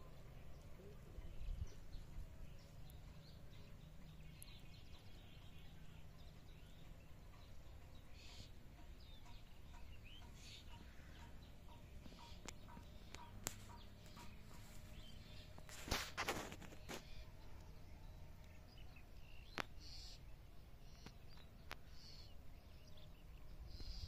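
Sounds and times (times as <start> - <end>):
distant bird chirps and calls: 0.0 - 24.0
brief rustle: 15.6 - 17.3.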